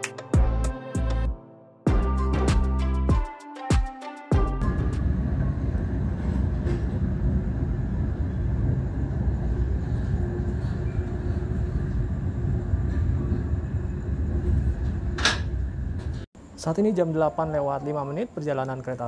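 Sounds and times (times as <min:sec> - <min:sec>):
train wheels rumbling on rails: 0:04.7 - 0:16.3.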